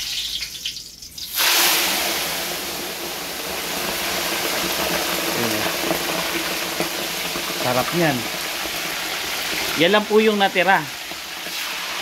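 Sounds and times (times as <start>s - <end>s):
hot oil hissing and bubbling: 0.0s - 12.0s.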